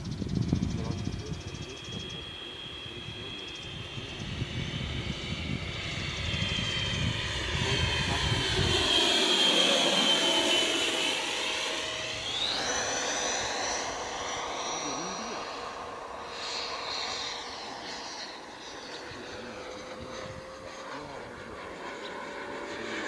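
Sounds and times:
wind on the microphone: 0.0s - 9.0s, 19.7s - 21.2s
model jet fan whining: 0.0s - 23.0s.

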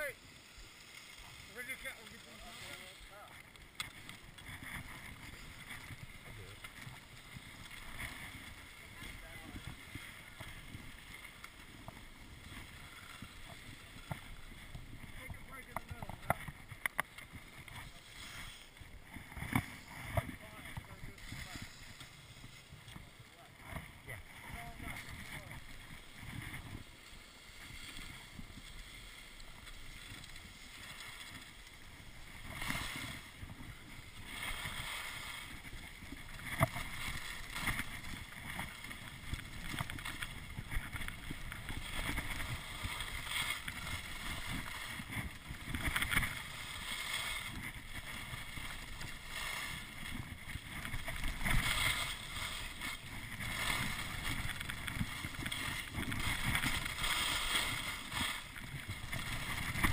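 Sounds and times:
skis scraping over snow: 0.0s - 59.9s
wind rushing over microphone: 32.4s - 59.9s.

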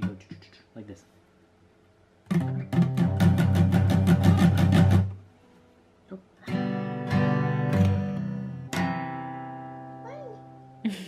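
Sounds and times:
acoustic guitar strums: 0.0s - 0.6s, 2.2s - 5.3s, 6.4s - 10.7s.

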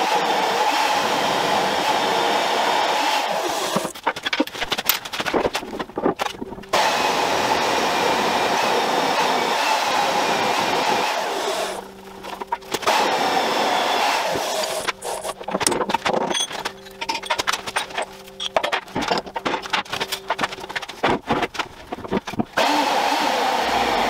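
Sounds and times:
drill motor whining: 12.8s - 15.6s, 22.6s - 24.0s.

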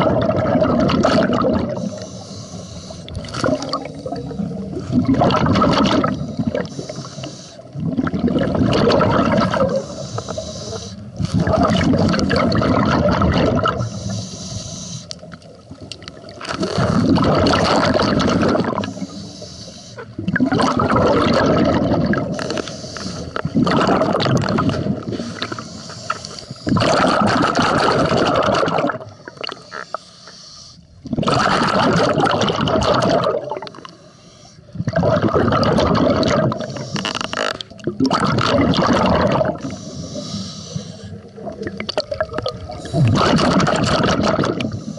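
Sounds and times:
underwater regulator bubbling: 0.0s - 44.9s.

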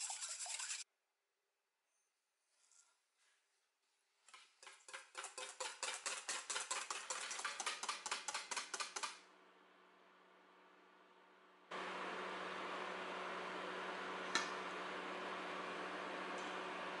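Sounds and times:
whisk scraping a metal bowl: 0.0s - 0.8s, 4.6s - 7.9s.

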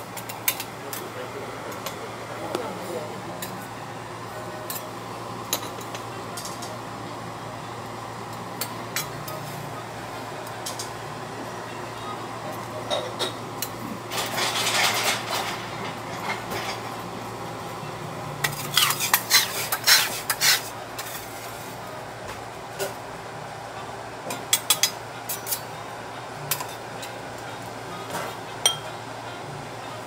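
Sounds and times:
metal spatulas scraping griddle: 14.1s - 16.9s, 18.4s - 21.8s.

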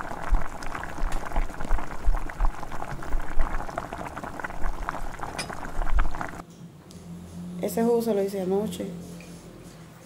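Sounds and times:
water boiling in a pot: 0.0s - 6.4s.

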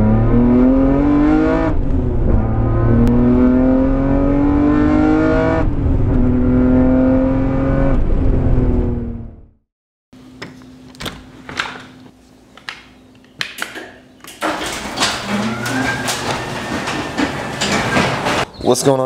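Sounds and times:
scattered knocks and clicks: 13.5s - 18.5s
garage door opener rattling: 13.7s - 18.5s.

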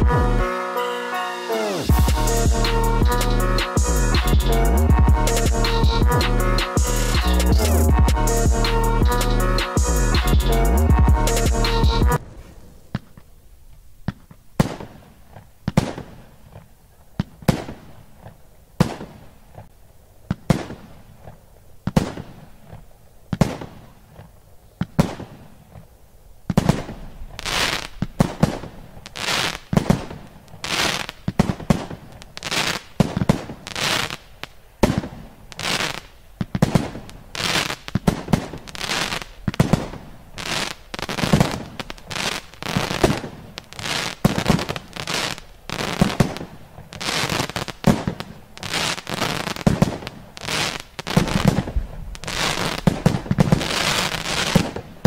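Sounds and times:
firework shots and bursts: 14.0s - 16.6s, 17.2s - 19.4s, 20.3s - 21.2s, 21.8s - 24.2s, 24.8s - 25.7s, 26.5s - 55.0s.

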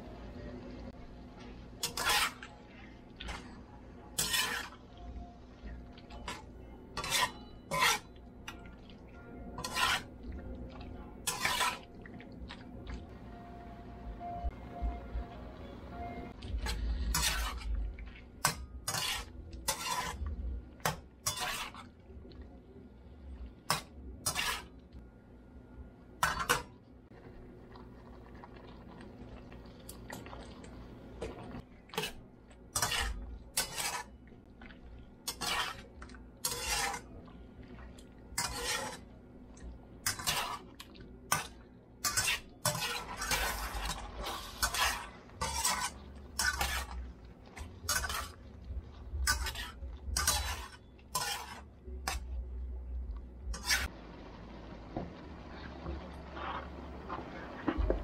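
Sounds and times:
metal spatula scraping skillet: 1.8s - 3.5s, 4.2s - 4.9s, 6.1s - 8.1s, 9.6s - 10.2s, 11.2s - 11.9s, 16.4s - 17.7s, 18.4s - 21.9s, 23.7s - 24.7s, 32.0s - 32.2s, 32.8s - 34.2s, 35.2s - 37.1s, 38.3s - 39.1s, 40.0s - 40.7s, 41.3s - 48.5s, 49.2s - 52.3s, 53.5s - 53.9s.

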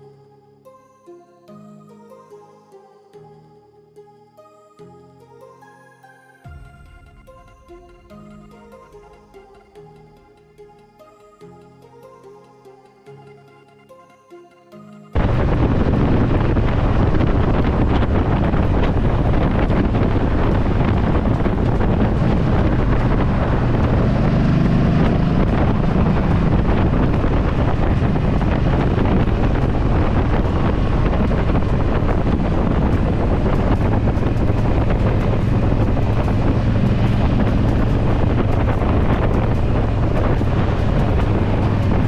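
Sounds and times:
motorcycle engine humming: 15.2s - 42.0s
wind rushing over microphone: 15.2s - 42.0s.

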